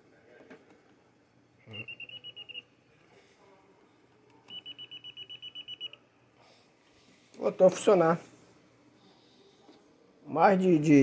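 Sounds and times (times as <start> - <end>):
voltage tester rapid beeps: 1.7 - 2.7, 4.5 - 6.0.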